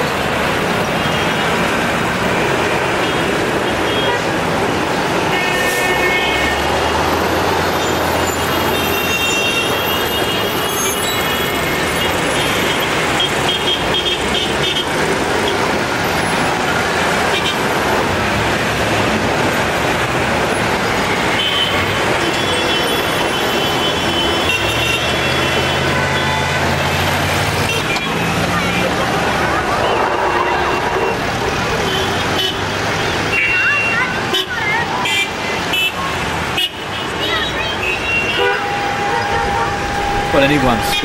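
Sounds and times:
city street traffic: 0:00.0 - 0:41.0
electric tram passing: 0:26.6 - 0:32.3, 0:38.4 - 0:41.0
short high-pitched tones: 0:38.8 - 0:41.0.

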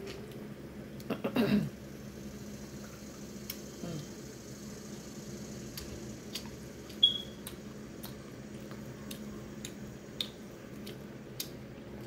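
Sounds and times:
wet mouth clicks and smacks: 0:05.7 - 0:11.6
person chewing food: 0:05.7 - 0:12.0
sharp squeak-like click: 0:07.0 - 0:07.4.

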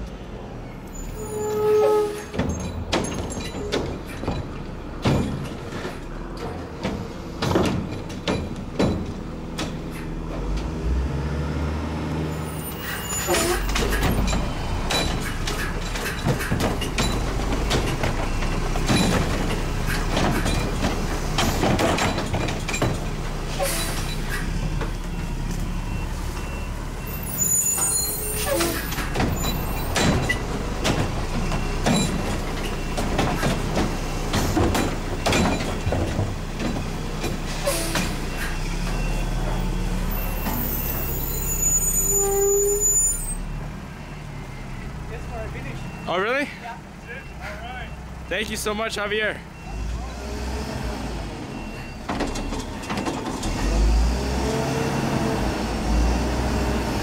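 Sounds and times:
metal clanks and bangs: 0:01.8 - 0:10.8, 0:12.7 - 0:25.3, 0:25.9 - 0:39.6
air brakes hissing: 0:12.5 - 0:14.0, 0:23.5 - 0:24.6, 0:37.4 - 0:38.8.

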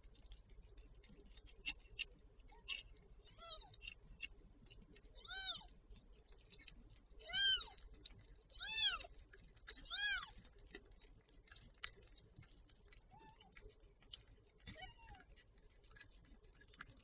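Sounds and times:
kittens mewing: 0:05.2 - 0:05.7, 0:07.2 - 0:07.8, 0:08.6 - 0:09.1, 0:09.8 - 0:10.4.

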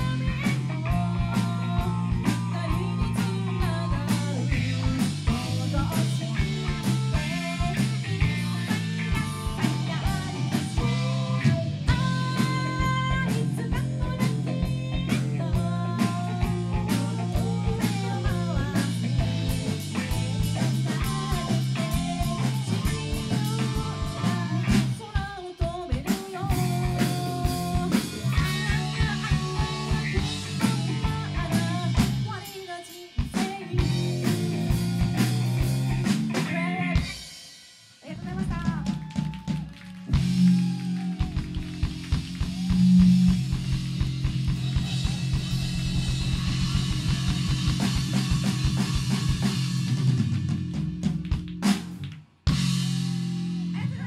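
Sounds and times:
female vocalist singing: 0:00.0 - 0:08.6, 0:09.6 - 0:19.0, 0:20.4 - 0:34.4, 0:36.4 - 0:37.1
rock band playing live: 0:00.0 - 0:54.0.

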